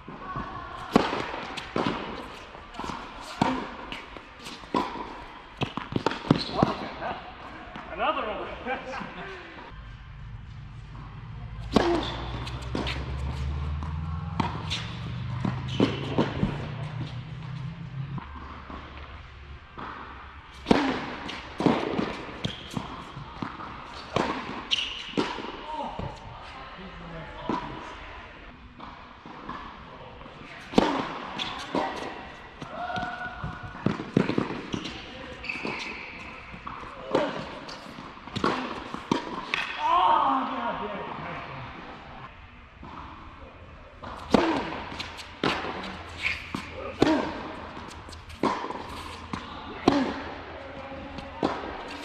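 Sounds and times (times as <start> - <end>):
tennis ball bouncing: 0.1 - 6.9, 10.5 - 26.2, 30.6 - 39.8, 44.0 - 52.0
racket striking tennis ball: 0.1 - 7.0, 10.9 - 25.6, 30.6 - 39.8, 44.0 - 52.0
sneaker squeak on court: 6.3 - 6.8, 11.8 - 13.1, 14.7 - 16.4, 24.7 - 25.2, 34.7 - 36.6, 46.1 - 47.2
steady low hum: 9.7 - 20.2.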